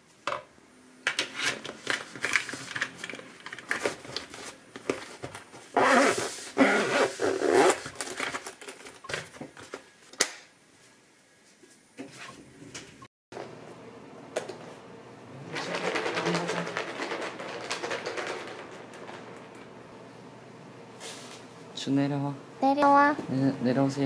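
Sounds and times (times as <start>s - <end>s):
zipper pulled shut: 5.8s - 7.8s.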